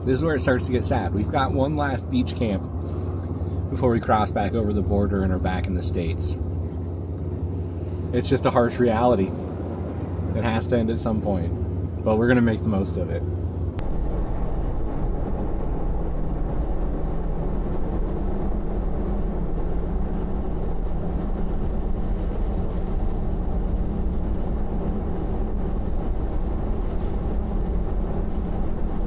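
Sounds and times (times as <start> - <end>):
vehicle engine and road rumble: 0.0 - 29.0.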